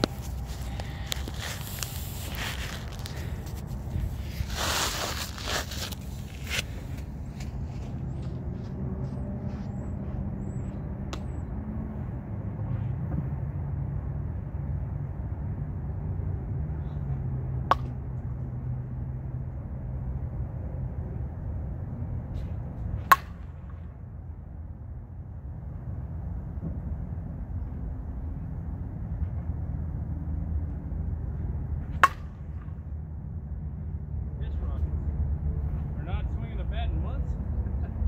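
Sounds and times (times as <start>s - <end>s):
steady low rumble: 0.0s - 38.0s
bat cracking ball: 17.6s - 18.0s, 23.0s - 23.9s, 31.9s - 32.8s.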